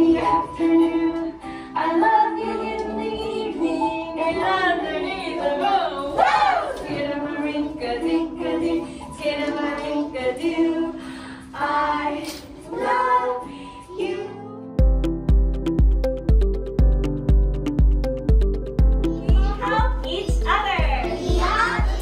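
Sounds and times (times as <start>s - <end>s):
children singing in unison: 0.0s - 14.6s, 21.1s - 22.0s.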